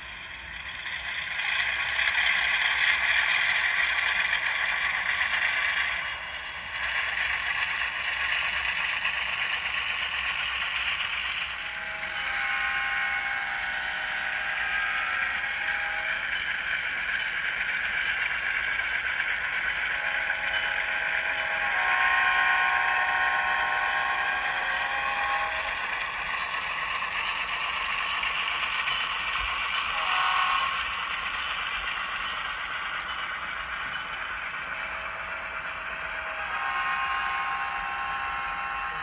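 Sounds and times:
train horn chord: 0:29.9 - 0:30.8, 0:36.2 - 0:39.0.

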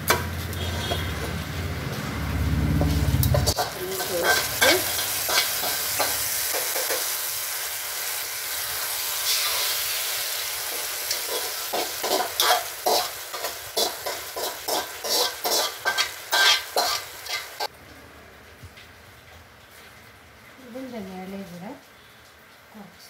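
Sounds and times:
oil sizzling: 0:00.0 - 0:20.7
steel spoon scraping pan: 0:00.1 - 0:01.5, 0:02.8 - 0:07.2, 0:10.6 - 0:17.7.

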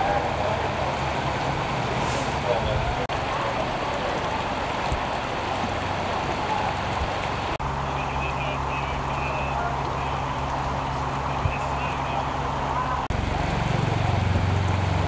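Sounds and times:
creek water rushing: 0:00.0 - 0:15.0.

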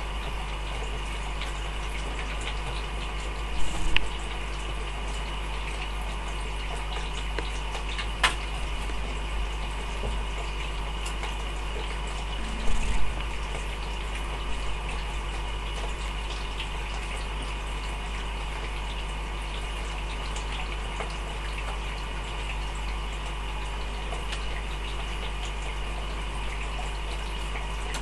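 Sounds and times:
aquarium water trickling: 0:00.0 - 0:28.0
tank equipment humming: 0:07.1 - 0:17.0.

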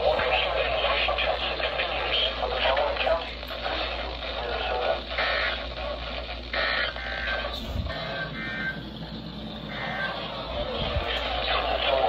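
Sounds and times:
radio broadcast voice: 0:00.0 - 0:12.0
steady low hum: 0:00.0 - 0:12.0.

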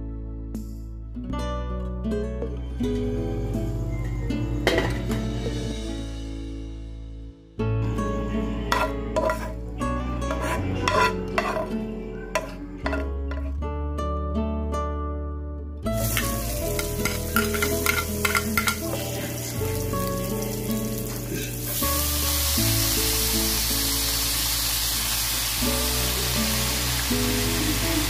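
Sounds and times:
background music: 0:00.0 - 0:28.0
loud steady sizzle: 0:15.9 - 0:28.0
garlic and onion frying in oil: 0:16.0 - 0:28.0.

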